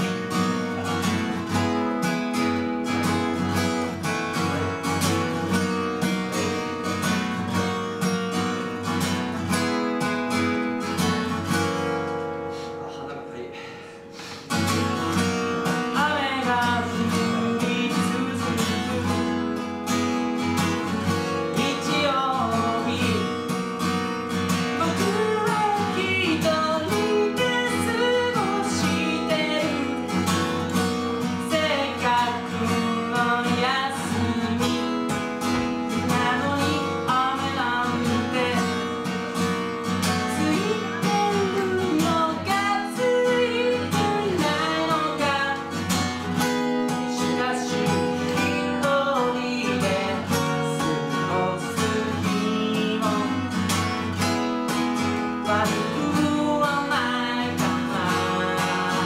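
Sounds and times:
acoustic guitar strumming: 0:00.0 - 0:59.0
man singing: 0:15.1 - 0:39.2, 0:40.1 - 0:54.1, 0:55.3 - 0:59.0.

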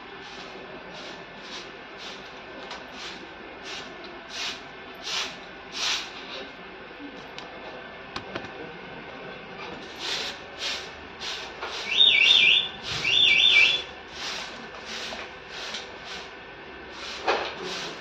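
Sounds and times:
broom sweeping dirt: 0:00.2 - 0:02.3, 0:02.9 - 0:06.2, 0:09.8 - 0:12.0, 0:14.1 - 0:18.0
shrill warbling chirps: 0:11.9 - 0:13.9.

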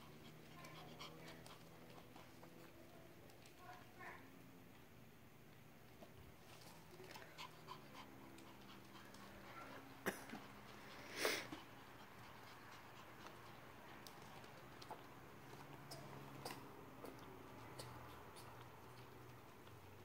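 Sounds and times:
dog breath puff: 0:10.1 - 0:11.7.

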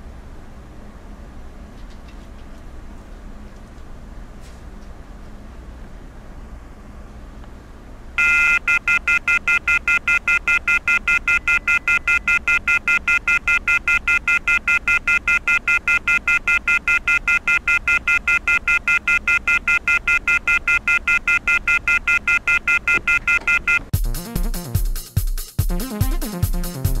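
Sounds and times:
rapid electronic beeping: 0:08.2 - 0:23.9
electronic music: 0:24.0 - 0:27.0.

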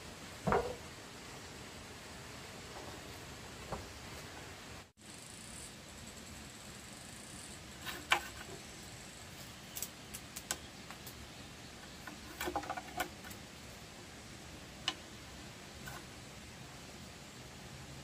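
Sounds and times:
faint steady hiss: 0:00.0 - 0:18.0.

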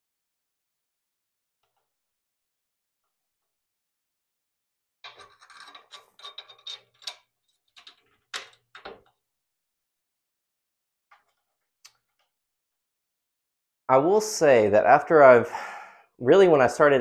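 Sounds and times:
wooden board scraping metal frame: 0:05.1 - 0:07.2.

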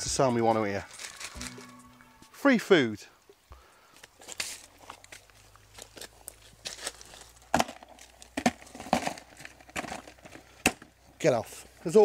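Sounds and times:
plastic trap knocking and clattering: 0:07.5 - 0:10.9.

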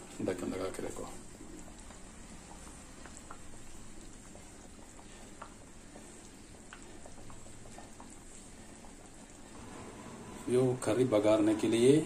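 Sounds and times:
curry simmering with bubbling pops: 0:00.0 - 0:10.5.

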